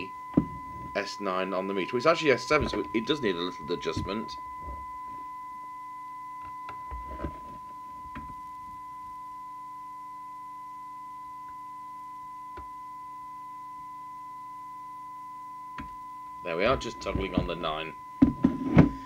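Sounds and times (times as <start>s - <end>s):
radio test tone: 0.0s - 8.9s, 15.8s - 19.0s
faint hum: 0.0s - 19.0s.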